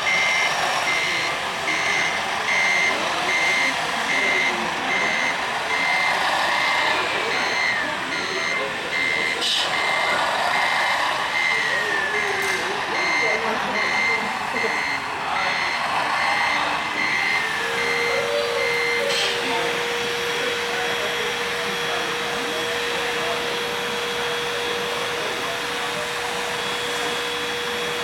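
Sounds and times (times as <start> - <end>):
steady whirring hum: 0.0 - 28.0
truck reversing beeper: 0.0 - 28.0.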